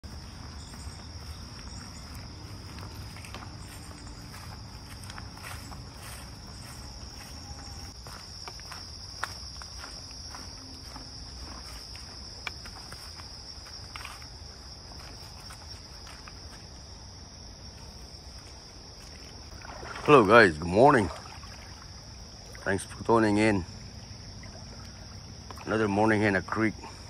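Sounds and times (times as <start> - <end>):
footsteps through grass: 0.0 - 16.8
high-pitched insect chorus: 0.0 - 27.0.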